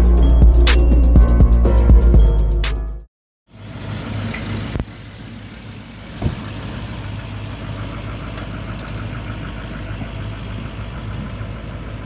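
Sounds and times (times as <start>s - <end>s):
truck engine idling: 3.5s - 12.0s.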